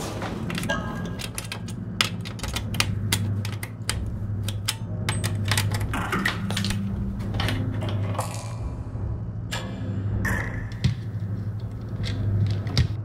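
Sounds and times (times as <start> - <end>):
clicks of switches and knobs: 0.0 - 8.1
low electrical hum: 0.0 - 13.0.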